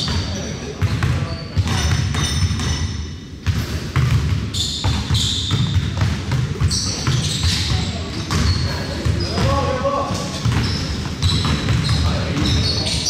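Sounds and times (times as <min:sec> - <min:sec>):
basketball bouncing on hardwood: 0:03.4 - 0:09.6, 0:10.4 - 0:12.6
players' voices: 0:06.3 - 0:13.0.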